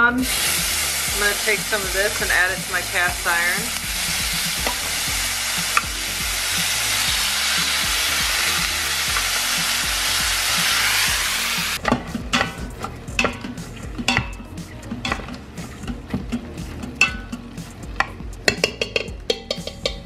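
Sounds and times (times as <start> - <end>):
meat sizzling in a pot: 0.0 - 14.4
chopper scraping and clicking on pot: 0.3 - 20.0.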